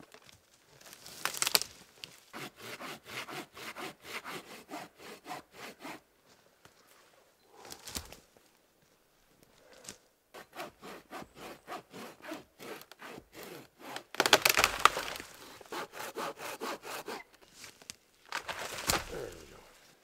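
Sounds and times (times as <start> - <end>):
hand saw cutting wood: 2.3 - 6.0, 10.4 - 17.4.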